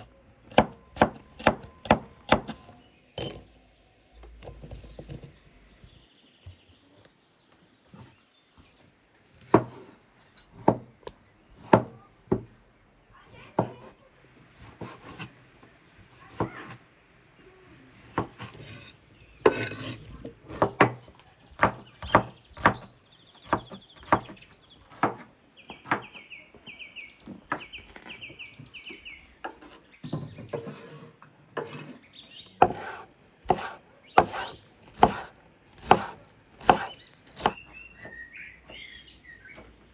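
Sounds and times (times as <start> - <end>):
knife chopping herbs: 0.0 - 3.5, 14.6 - 15.3, 18.0 - 26.2, 32.6 - 38.8
bird chirping: 0.0 - 13.5, 17.4 - 39.9
knife scraping on cutting board: 18.4 - 20.3, 30.6 - 37.5.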